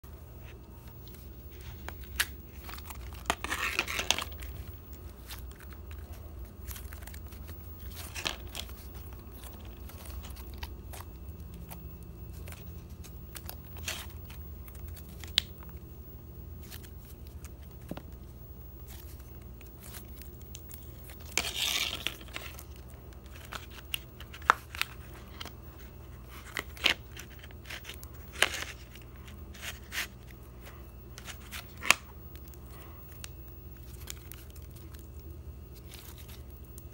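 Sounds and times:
low steady hum: 0.0 - 36.9.

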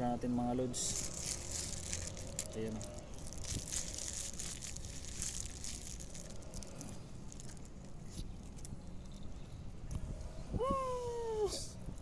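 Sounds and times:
plastic bag and paper crinkling: 0.8 - 8.8.

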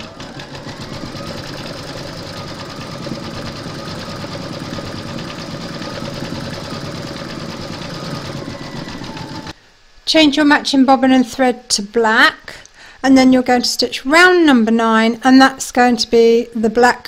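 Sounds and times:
embroidery machine stitching: 0.0 - 9.6.

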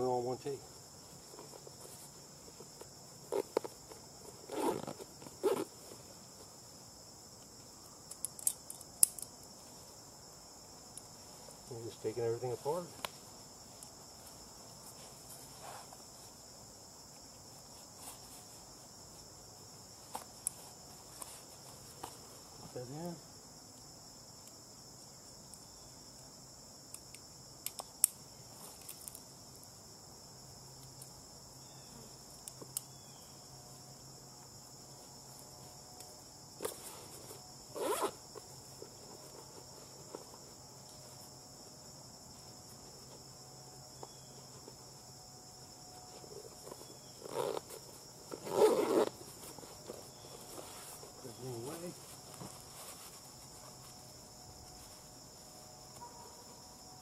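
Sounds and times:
insects chorus: 0.0 - 57.0
zipper-like rasp: 4.5 - 5.7, 37.7 - 38.2, 47.2 - 49.2.

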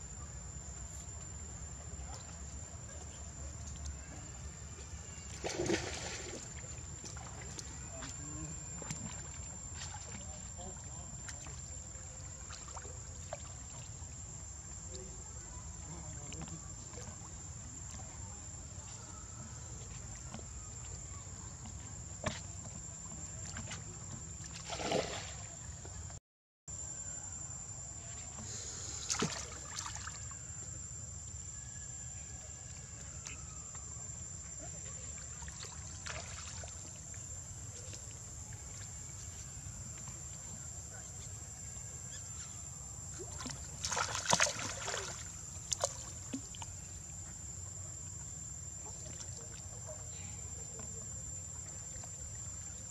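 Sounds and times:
water sloshing: 4.9 - 26.0, 28.3 - 30.5, 32.8 - 42.4, 43.0 - 52.9
splashes: 5.1 - 14.1, 15.8 - 25.8, 28.2 - 30.5, 34.5 - 41.2, 43.1 - 47.5.

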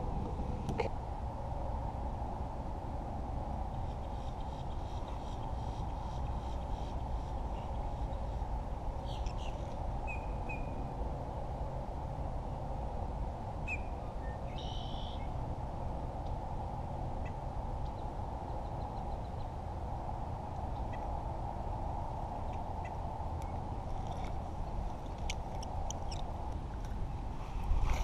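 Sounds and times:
wind buffeting microphone: 0.0 - 14.6, 15.3 - 28.0
bird chirps: 9.0 - 10.8, 13.6 - 15.3.

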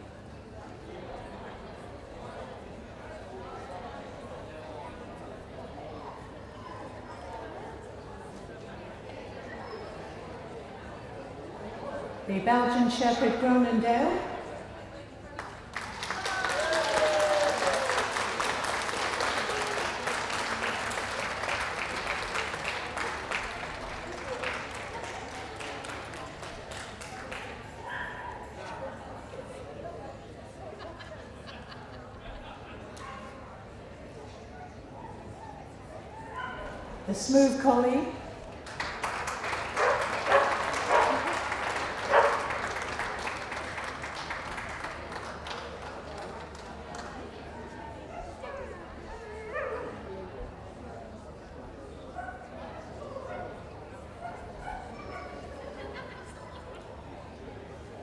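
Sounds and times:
audience applauding: 15.4 - 27.9, 38.5 - 47.4.

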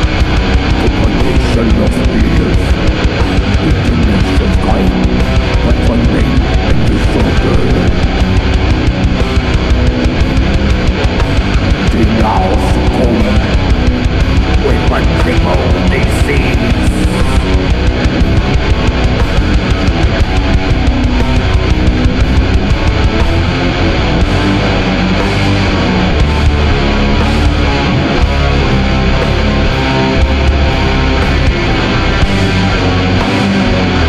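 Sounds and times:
drum kit playing busy beat: 0.0 - 24.6
distorted electric guitars: 0.0 - 34.0.

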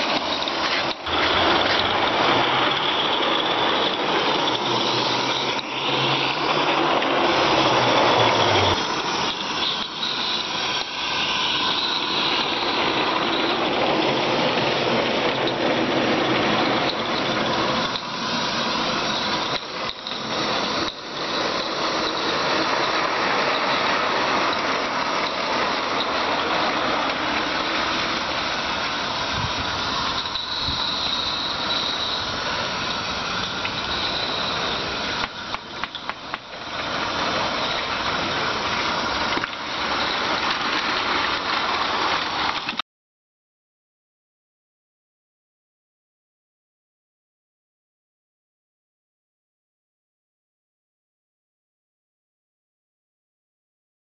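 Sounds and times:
steam locomotive hissing: 0.0 - 42.8.

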